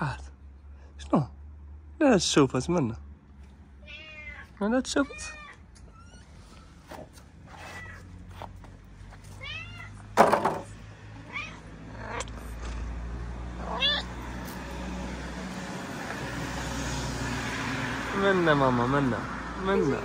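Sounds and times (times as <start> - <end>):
cats meowing: 3.8 - 6.8, 7.5 - 8.2, 9.2 - 10.2, 11.1 - 12.9, 13.5 - 14.4.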